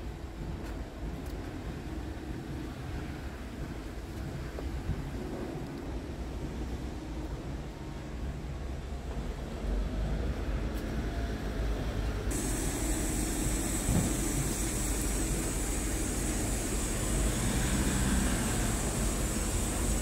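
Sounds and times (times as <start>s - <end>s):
diesel engine idling: 12.3s - 20.0s.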